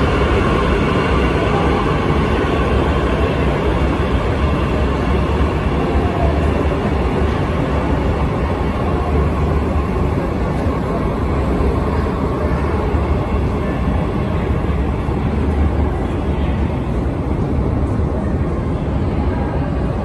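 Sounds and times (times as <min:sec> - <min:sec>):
metro train rumbling: 0:00.0 - 0:20.0.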